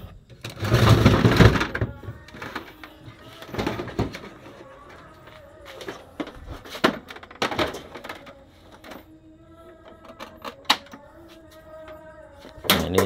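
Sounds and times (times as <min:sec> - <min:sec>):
faint steady hum: 0:00.0 - 0:12.8
plastic printer casings knocking: 0:06.2 - 0:09.0, 0:12.6 - 0:13.0.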